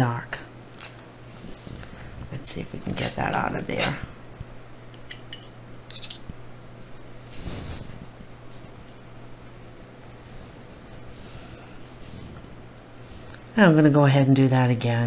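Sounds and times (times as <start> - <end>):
low steady hum: 0.0 - 15.0
soft rustle: 1.2 - 2.2, 6.8 - 9.3, 10.0 - 13.7.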